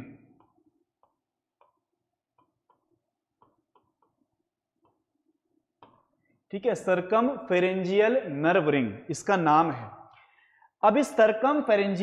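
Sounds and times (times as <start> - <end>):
chalk tapping on blackboard: 0.4 - 5.1.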